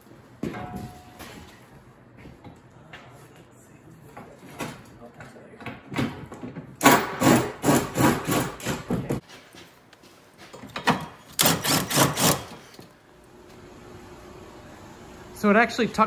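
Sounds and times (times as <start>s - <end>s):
cordless impact wrench bursts: 11.4s - 12.6s.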